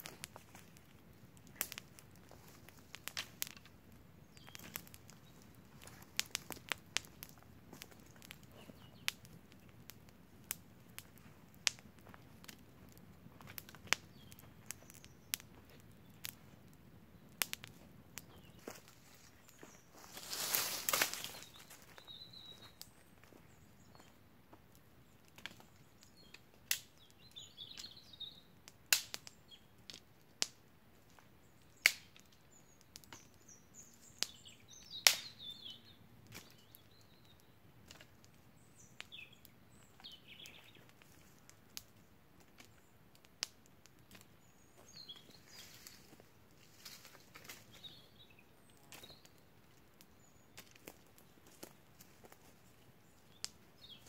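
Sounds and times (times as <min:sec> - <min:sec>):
sharp snaps: 0:01.4 - 0:02.0, 0:17.4 - 0:18.3, 0:25.3 - 0:27.0, 0:28.9 - 0:30.6, 0:31.8 - 0:32.3, 0:34.2 - 0:35.4
bird chirps: 0:21.2 - 0:24.1, 0:32.5 - 0:37.5, 0:38.6 - 0:40.9, 0:44.4 - 0:46.0.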